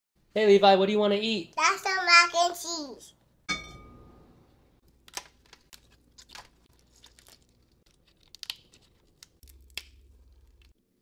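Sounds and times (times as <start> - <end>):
lobster shell cracking: 4.9 - 10.8.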